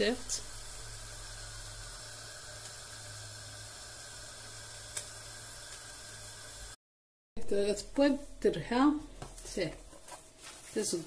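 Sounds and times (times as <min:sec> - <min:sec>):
flatbread hissing on griddle: 0:00.0 - 0:06.8
low hum: 0:00.0 - 0:06.8.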